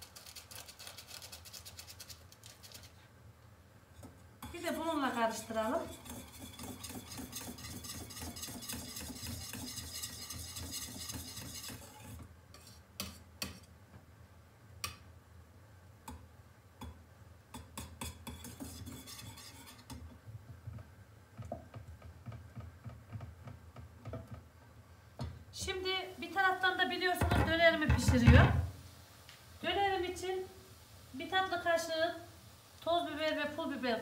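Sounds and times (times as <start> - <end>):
knocks and scrapes on pot: 4.0 - 13.6, 17.6 - 20.1
utensil stirring pot: 4.0 - 13.6, 17.6 - 20.1.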